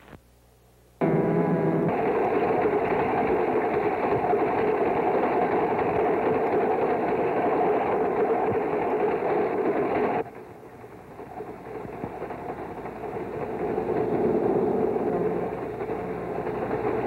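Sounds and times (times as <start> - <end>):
train rumbling and clattering on rails: 10.2 - 17.0.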